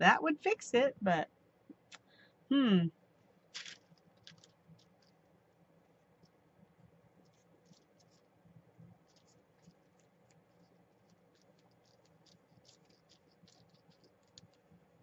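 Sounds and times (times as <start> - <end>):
low steady hum: 0.0 - 15.0
fingertips rustling paper: 3.6 - 5.2, 7.2 - 14.8.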